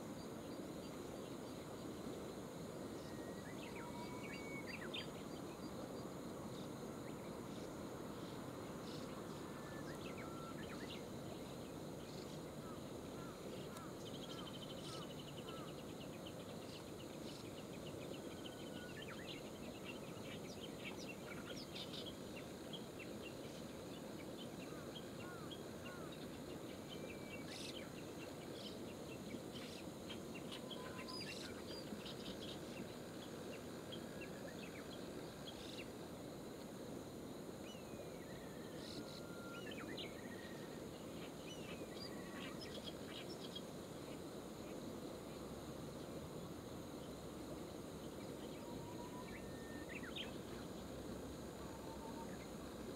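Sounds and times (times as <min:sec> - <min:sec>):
songbird chirps and whistles: 0:02.9 - 0:05.7, 0:09.0 - 0:11.4, 0:28.6 - 0:32.8, 0:37.7 - 0:43.6, 0:48.2 - 0:50.6.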